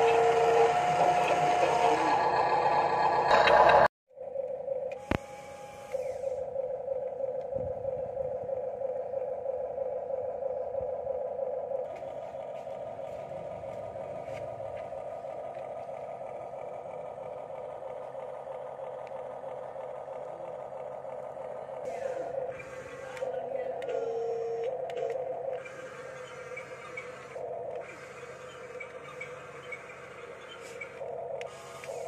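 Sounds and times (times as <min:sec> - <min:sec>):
small electric motors whining: 0:00.0 - 0:32.0
faint clatter and scraping: 0:26.3 - 0:31.1.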